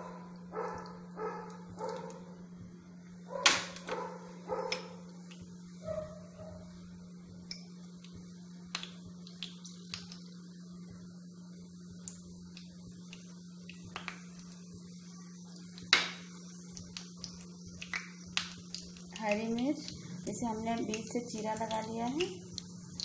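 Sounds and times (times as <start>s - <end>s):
seeds popping in hot oil: 7.4s - 11.1s, 11.9s - 23.0s.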